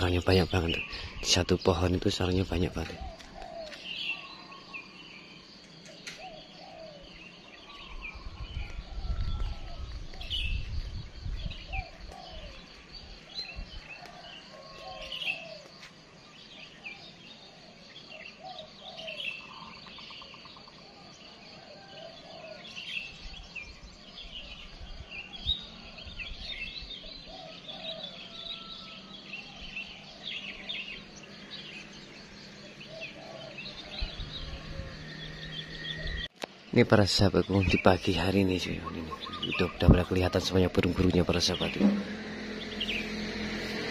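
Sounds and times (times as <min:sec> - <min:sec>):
small birds chirping: 0:00.0 - 0:43.9
low rumble: 0:41.5 - 0:43.9.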